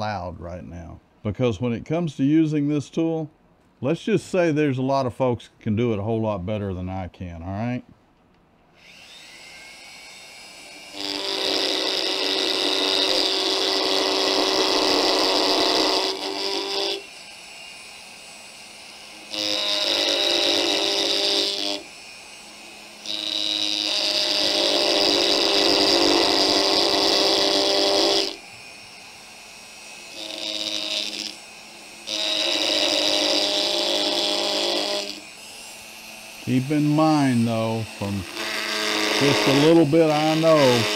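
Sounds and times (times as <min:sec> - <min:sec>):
rotary carving tool whine: 0:08.7 - 0:40.9.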